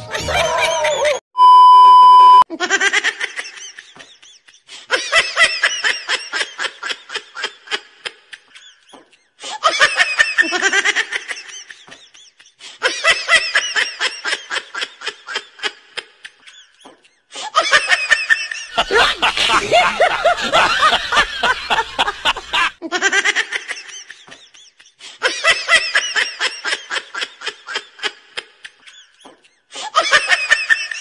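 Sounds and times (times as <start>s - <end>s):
loud electronic beep: 1.4s - 2.4s
high rapid laughter sound effect: 18.6s - 23.3s.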